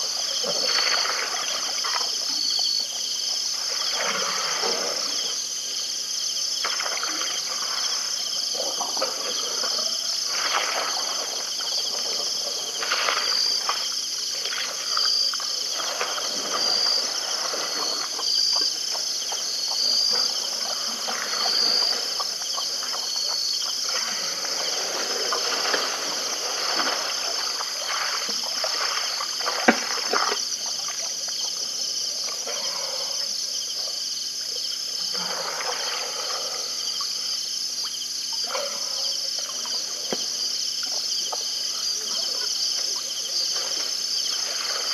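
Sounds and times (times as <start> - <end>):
splashy noises: 0.0 - 2.2, 6.6 - 8.1, 8.9 - 31.2, 42.0 - 44.9
crickets trilling: 0.0 - 44.9.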